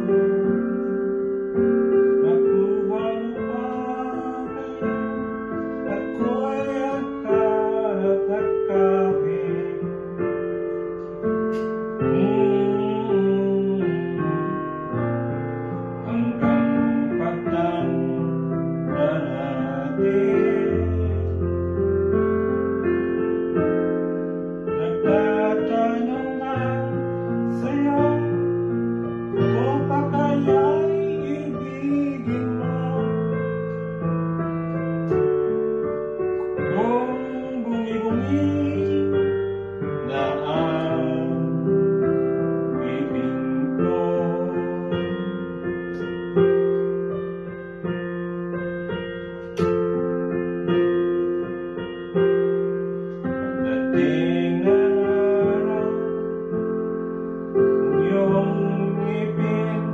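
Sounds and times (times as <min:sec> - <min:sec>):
piano chords: 0:00.0 - 0:59.9
person singing: 0:01.7 - 0:14.8, 0:15.7 - 0:21.9, 0:24.8 - 0:33.9, 0:34.7 - 0:46.8, 0:53.6 - 0:56.5, 0:57.5 - 0:59.9.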